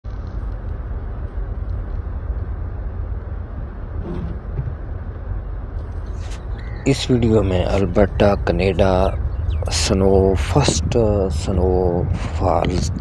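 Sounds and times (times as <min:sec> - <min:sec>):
car engine and tyre rumble: 0:00.0 - 0:13.0.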